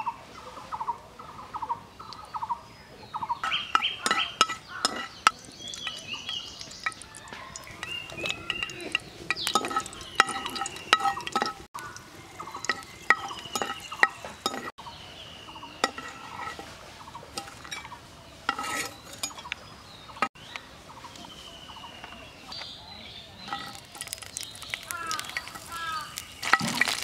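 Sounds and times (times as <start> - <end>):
metal utensil clinking on pan: 3.4 - 14.7, 15.8 - 16.7, 17.4 - 19.6, 23.5 - 27.0
light sizzle of oil: 23.6 - 27.0.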